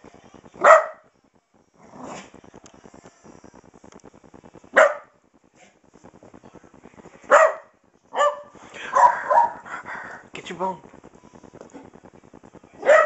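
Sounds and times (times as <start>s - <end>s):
small dog barking: 0.6s - 1.0s, 4.7s - 5.2s, 7.3s - 9.6s, 12.8s - 13.0s.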